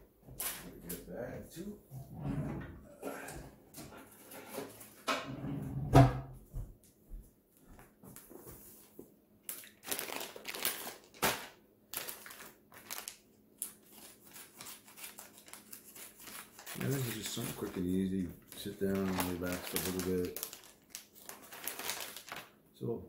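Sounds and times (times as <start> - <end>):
plastic package crinkling: 9.4 - 22.6.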